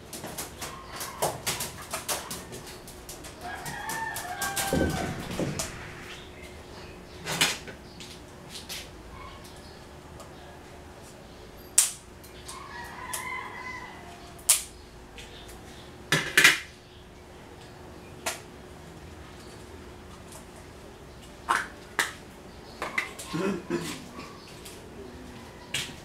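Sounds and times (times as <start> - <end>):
rooster crowing faintly: 0.7 - 7.0, 12.5 - 14.4, 24.1 - 26.0.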